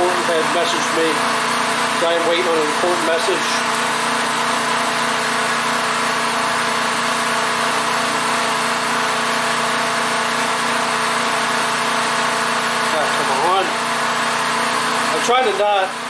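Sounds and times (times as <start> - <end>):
portable generator engine running: 0.0 - 16.0.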